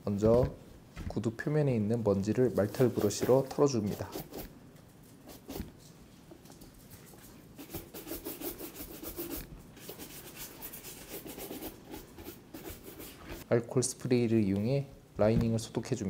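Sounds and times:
brush stroking leather boot: 2.5s - 4.5s.

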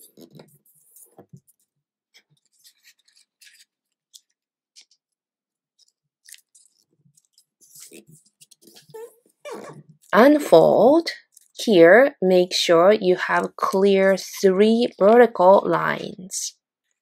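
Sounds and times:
paper rustling and crinkling: 0.0s - 9.2s.

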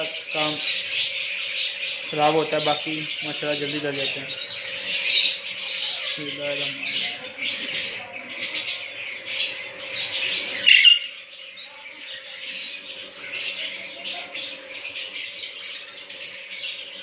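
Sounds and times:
birds chirping and chattering: 0.0s - 17.0s
bird squawk: 3.6s - 16.8s.

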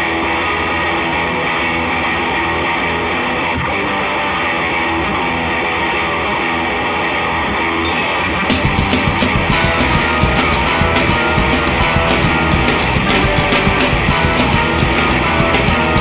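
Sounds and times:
electric guitar playing: 0.0s - 16.0s.

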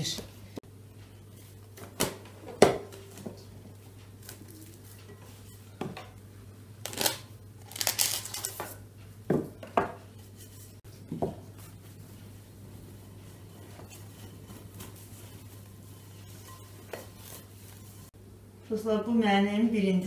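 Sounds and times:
cling film crinkling and tearing: 6.8s - 8.6s.

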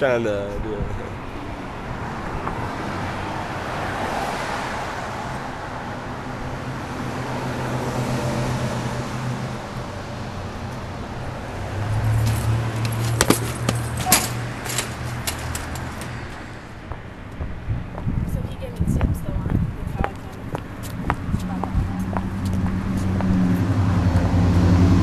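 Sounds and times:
city street traffic: 0.0s - 25.0s
sharp knocks: 12.2s - 16.4s.

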